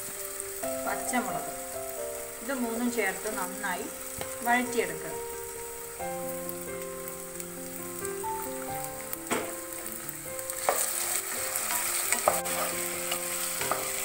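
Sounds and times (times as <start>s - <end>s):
vegetables sizzling in hot oil: 0.0s - 14.0s
wooden spatula scraping pan: 10.5s - 14.0s.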